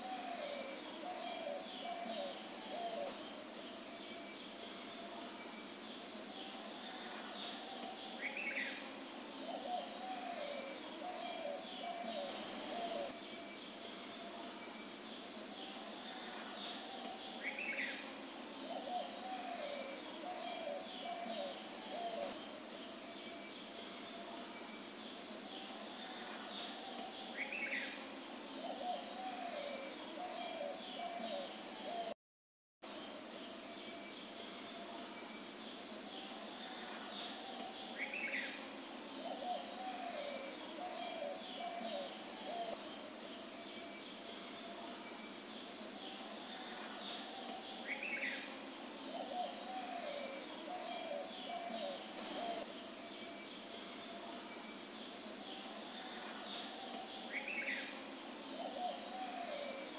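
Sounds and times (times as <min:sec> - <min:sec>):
bird cooing calls: 0:00.0 - 0:03.3, 0:09.4 - 0:13.5, 0:18.6 - 0:22.5, 0:28.6 - 0:32.1, 0:39.2 - 0:43.0, 0:46.1 - 0:53.4, 0:55.5 - 0:59.9
steady high hiss: 0:00.0 - 0:32.0, 0:32.9 - 0:59.9.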